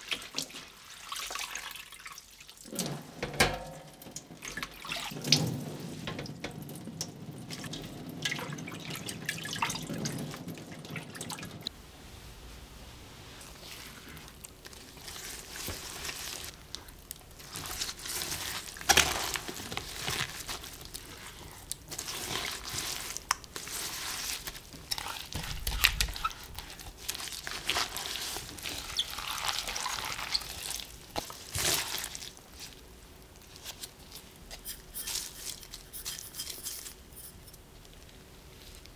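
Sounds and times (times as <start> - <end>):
wet leaves rustling and squishing: 0.0 - 3.0, 3.9 - 35.9
water dripping: 0.0 - 11.7.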